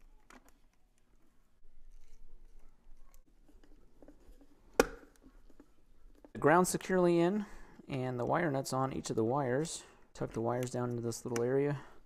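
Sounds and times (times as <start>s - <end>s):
faint wire handling sounds: 0.0s - 12.0s.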